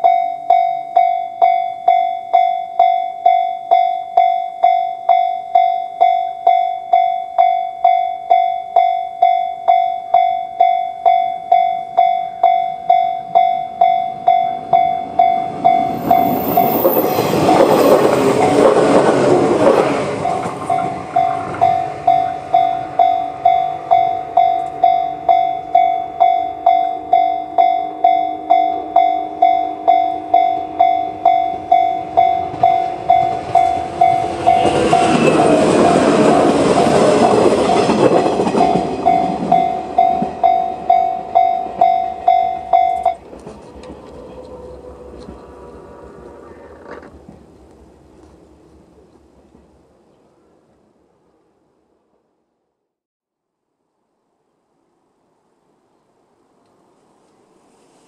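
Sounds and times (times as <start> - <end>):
level crossing bell ringing: 0.0 - 18.7, 20.2 - 43.2
electric trains passing: 0.0 - 50.0.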